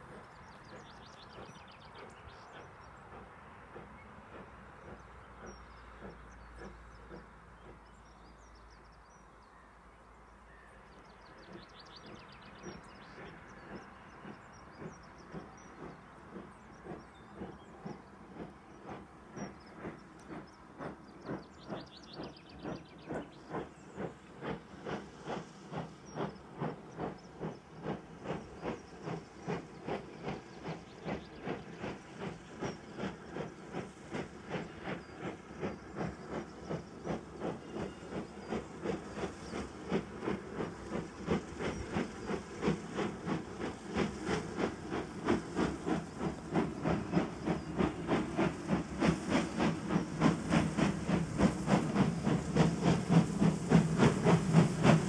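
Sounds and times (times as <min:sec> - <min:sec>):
steam locomotive exhaust beats: 0:00.0 - 0:55.0.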